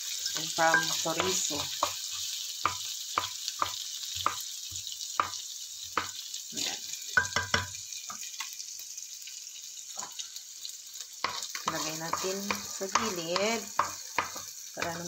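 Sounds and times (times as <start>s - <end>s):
garlic and onions sizzling in oil: 0.0s - 15.0s
wooden spatula scraping a pan: 11.2s - 15.0s.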